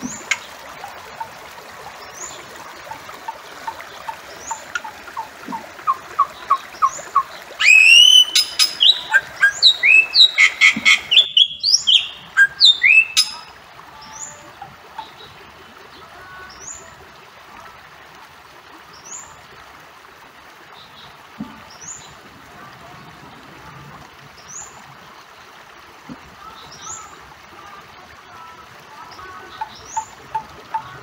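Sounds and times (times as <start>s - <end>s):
background hiss: 0.0s - 17.6s
bird whistled calls: 5.9s - 13.5s.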